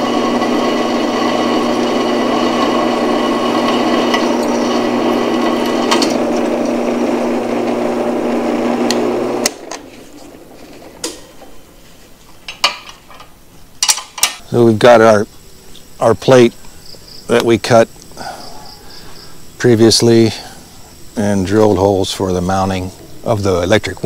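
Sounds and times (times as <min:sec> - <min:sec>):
drill press cutting steel: 0:00.0 - 0:11.6.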